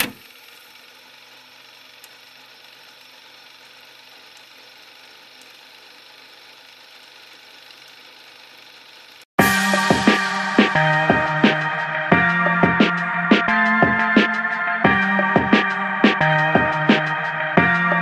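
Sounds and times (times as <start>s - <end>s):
film projector whirring: 0.0s - 9.3s.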